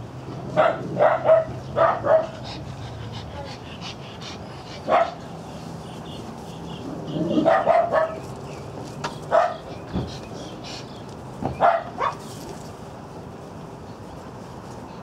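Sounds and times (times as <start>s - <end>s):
dogs barking: 0.4s - 5.4s, 6.8s - 8.3s, 9.1s - 12.3s.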